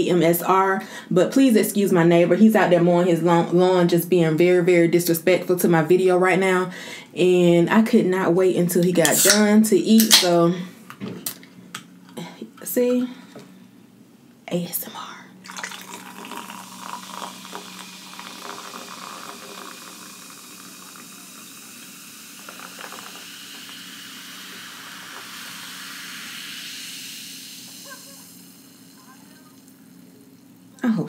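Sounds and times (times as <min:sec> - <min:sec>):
sparkling water fizzing in a can: 0:15.5 - 0:30.5.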